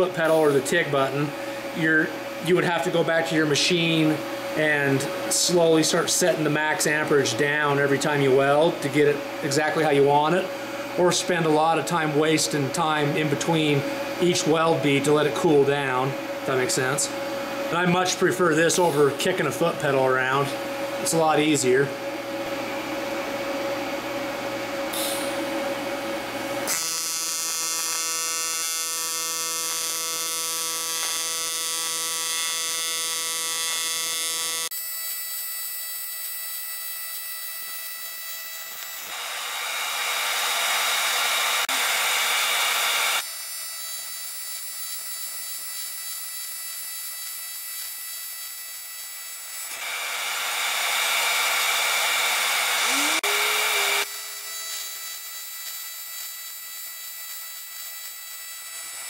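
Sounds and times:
welding arc buzzing: 24.9 - 59.0.

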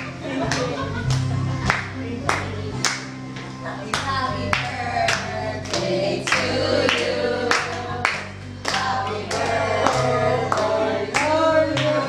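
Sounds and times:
people clapping in time: 0.4 - 12.0
group of people singing: 4.1 - 12.0.

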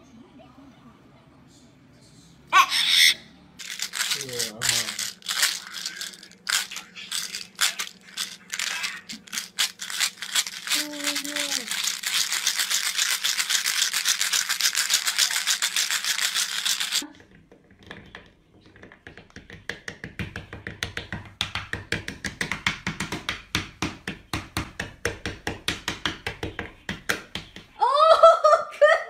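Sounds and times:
fast dense rattling: 3.6 - 17.0.

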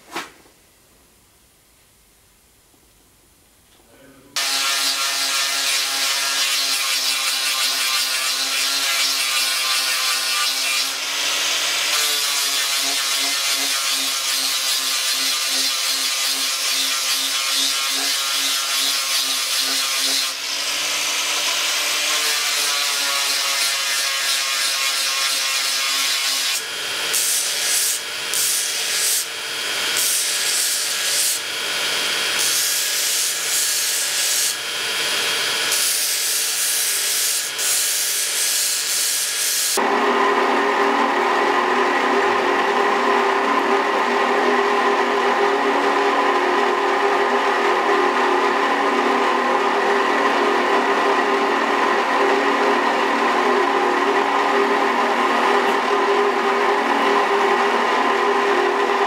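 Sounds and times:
belt grinder grinding steel: 4.4 - 39.8
tonal belt grinder: 4.4 - 39.8
angle grinder: 4.4 - 59.0.

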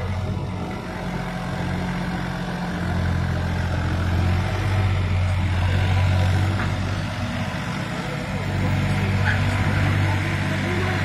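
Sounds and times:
tractor diesel engine drone: 0.0 - 11.0.

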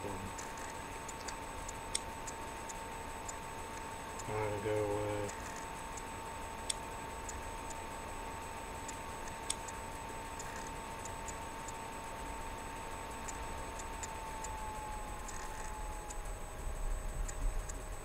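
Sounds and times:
faint steady tone: 0.0 - 18.0.

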